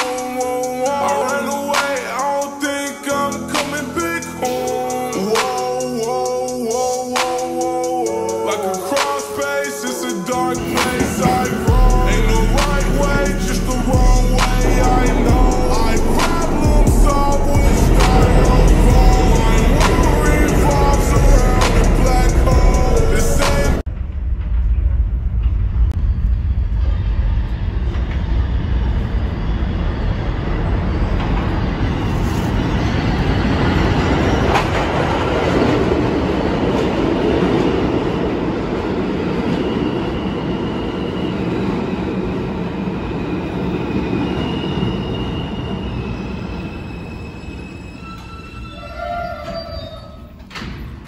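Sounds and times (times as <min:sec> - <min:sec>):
high whining tones: 0:00.0 - 0:35.1
train wheels rumbling on track: 0:00.0 - 0:51.0.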